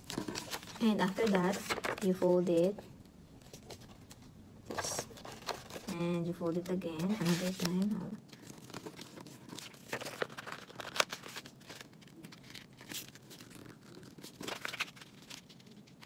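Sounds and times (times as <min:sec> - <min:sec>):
paper rustling and crackling: 0:00.0 - 0:02.8, 0:03.4 - 0:16.0.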